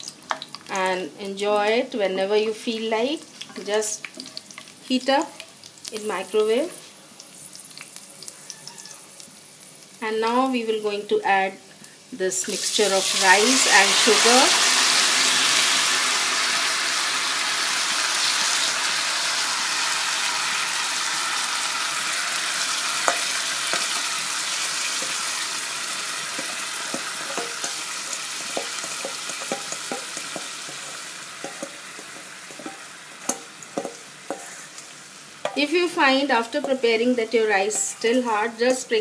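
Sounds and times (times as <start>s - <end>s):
rice sizzling in hot ghee: 0.0s - 39.0s
spatula scraping steel bowl: 26.4s - 34.8s.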